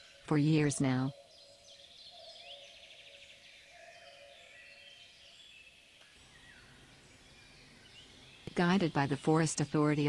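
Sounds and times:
bird trill: 0.0s - 10.0s
small birds chirping: 0.0s - 10.0s.

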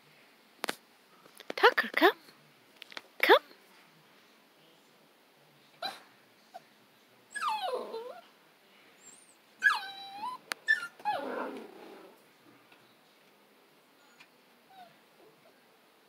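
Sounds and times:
puppy whining and whimpering: 7.3s - 8.3s, 9.0s - 12.2s, 14.0s - 15.0s.

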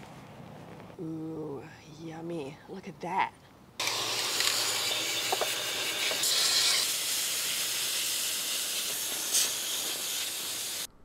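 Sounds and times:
hose spraying water: 3.8s - 10.9s.

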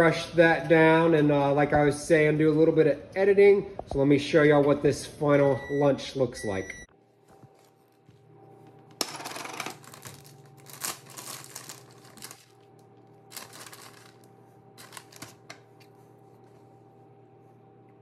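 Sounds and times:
steady low hum: 0.0s - 18.0s
plastic bag rustling: 7.1s - 16.8s.

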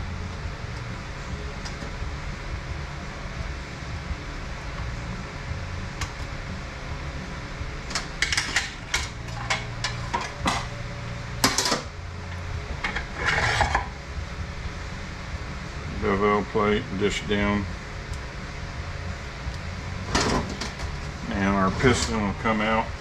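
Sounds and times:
steady low hum: 0.0s - 23.0s
metal parts and tools clinking: 8.0s - 10.7s.

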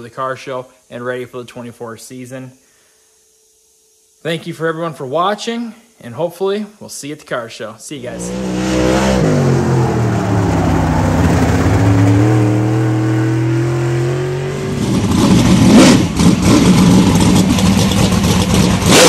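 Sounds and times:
race car engine running hard: 8.1s - 19.0s.

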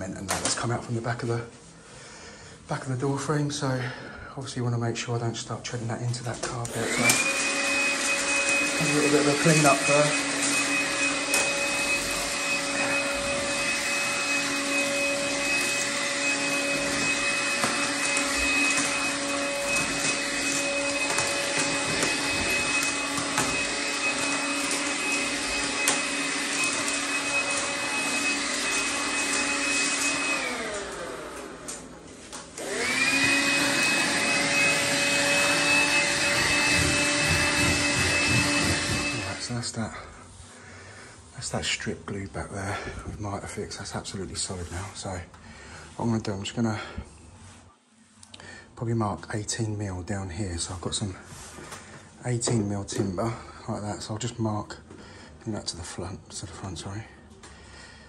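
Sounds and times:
stick vacuum motor whine: 6.4s - 39.6s.

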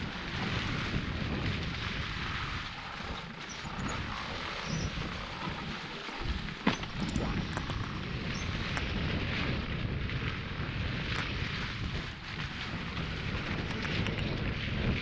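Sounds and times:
bike rattling: 0.0s - 15.0s
wind on microphone: 0.0s - 15.0s
bike knocking on bump: 3.0s - 8.2s.

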